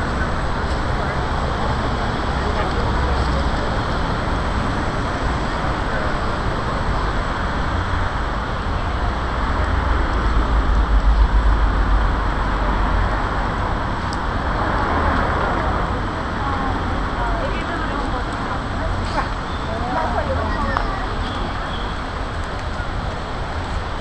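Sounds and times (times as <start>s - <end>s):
low rumble: 0.0s - 17.0s
cars passing on road: 0.0s - 24.0s.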